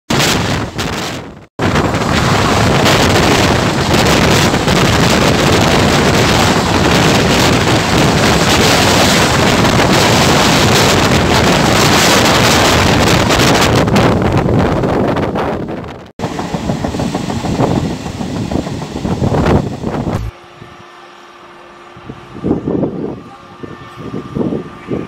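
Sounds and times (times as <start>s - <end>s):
wind buffeting microphone: 0.1s - 20.8s, 22.0s - 25.0s
train wheels on rails: 0.4s - 20.4s.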